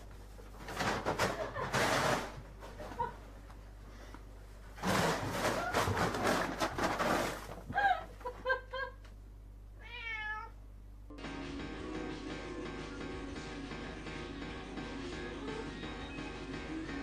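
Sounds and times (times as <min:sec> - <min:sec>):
cats scuffling: 0:04.7 - 0:08.4
cat meowing: 0:09.8 - 0:10.6
music: 0:11.1 - 0:17.0.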